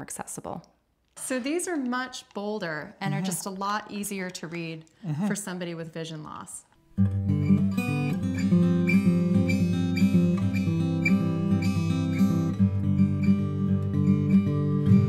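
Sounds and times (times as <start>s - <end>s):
acoustic guitar music: 6.8s - 15.0s.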